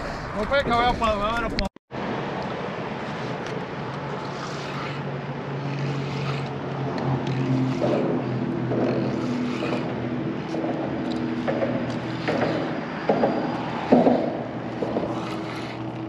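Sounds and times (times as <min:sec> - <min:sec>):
steady engine hum: 0:01.9 - 0:16.0
short knocks: 0:09.8 - 0:15.8.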